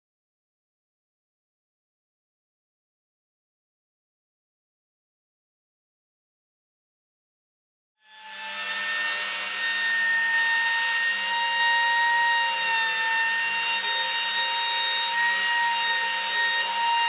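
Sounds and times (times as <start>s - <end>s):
router bit rasping wood: 8.0s - 17.0s
trim router whining: 8.0s - 17.0s.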